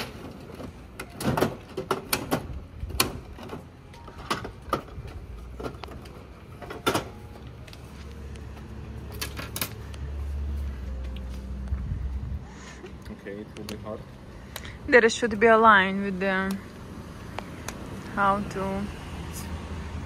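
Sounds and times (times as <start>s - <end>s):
vending machine clicks and clunks: 0.0s - 7.4s.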